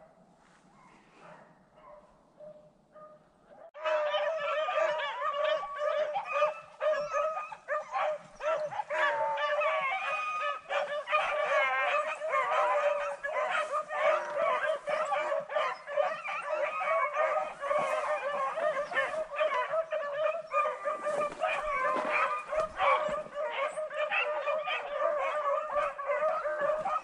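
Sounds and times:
dogs baying: 0:01.8 - 0:27.0.

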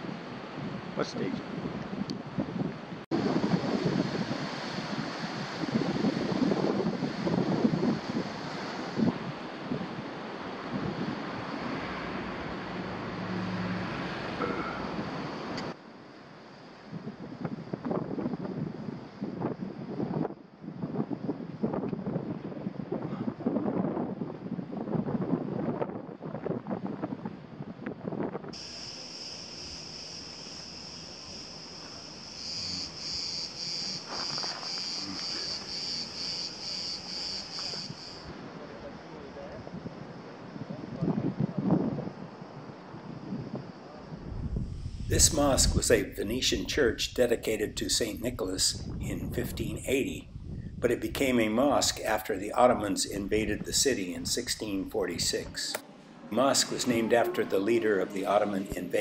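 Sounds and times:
wind buffeting microphone: 0:00.0 - 0:13.0, 0:16.7 - 0:59.0
sea surf rushing: 0:00.0 - 0:16.9, 0:28.6 - 0:40.6, 0:51.6 - 0:59.0
insects shrilling: 0:28.6 - 0:38.3.

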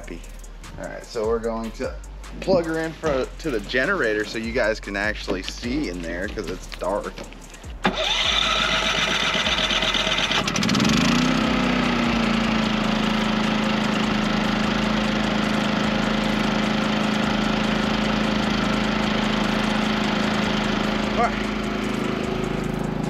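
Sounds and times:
portable generator engine running: 0:07.7 - 0:23.0.

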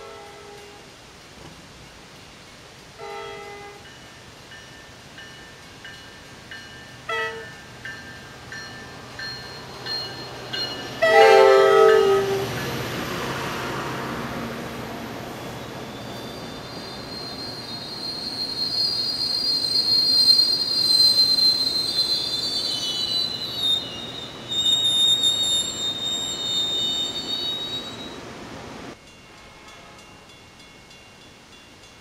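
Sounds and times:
rumble of passing rail cars: 0:00.0 - 0:32.0
train wheels squealing on rails: 0:03.0 - 0:28.3.

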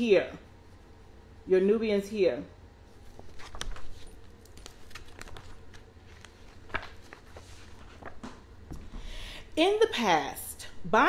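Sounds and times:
low steady hum: 0:00.0 - 0:11.0
picture book pages rustling: 0:02.9 - 0:08.4.

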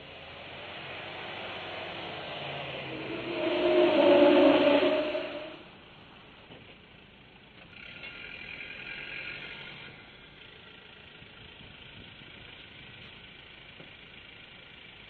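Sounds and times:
off-road vehicle engine running: 0:06.6 - 0:15.0.

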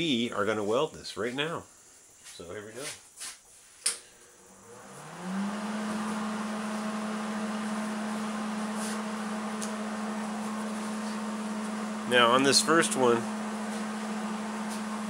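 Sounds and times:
welding machine fan whirring: 0:03.9 - 0:15.0.

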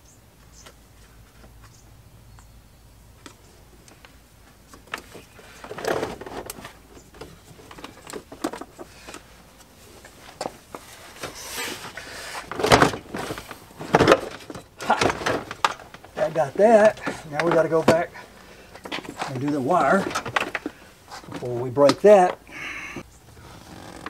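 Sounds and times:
plastic parts clicking and knocking: 0:12.4 - 0:18.1, 0:18.7 - 0:22.4.

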